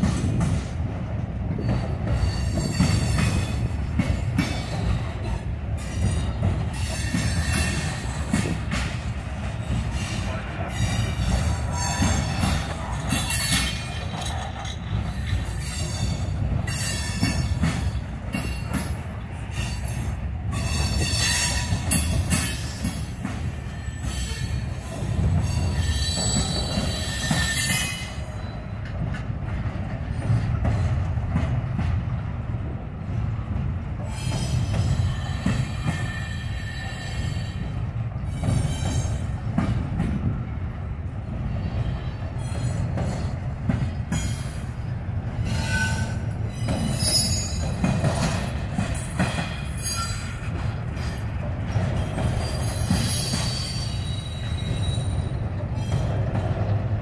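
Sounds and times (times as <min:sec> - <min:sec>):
wheels rumbling on rail: 0:00.0 - 0:57.0
wheel squeal: 0:25.4 - 0:28.6, 0:45.5 - 0:47.6, 0:52.0 - 0:56.0.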